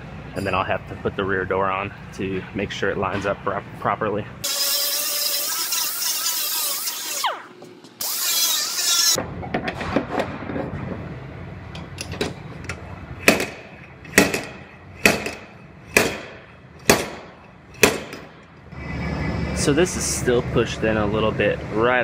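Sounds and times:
grinding disc whirring on metal: 8.0 - 9.2.

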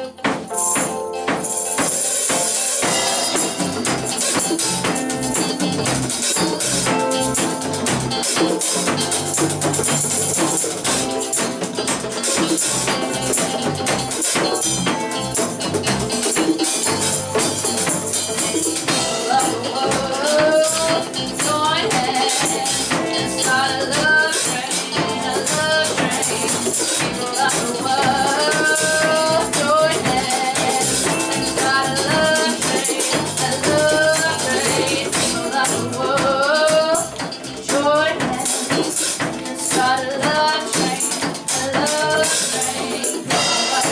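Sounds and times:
woman singing: 0.0 - 0.9, 2.8 - 9.3, 17.9 - 43.9
rock band playing live: 0.0 - 43.9.

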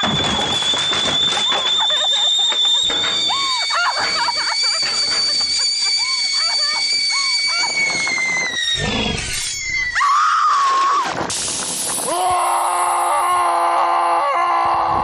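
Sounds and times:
loud held scream: 5.8 - 11.1, 12.0 - 15.0.

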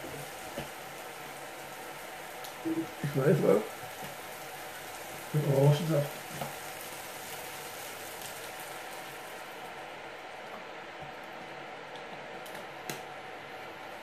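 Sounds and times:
juice pouring into pan: 0.0 - 9.9
onions and tomatoes sizzling in pan: 0.0 - 12.4.

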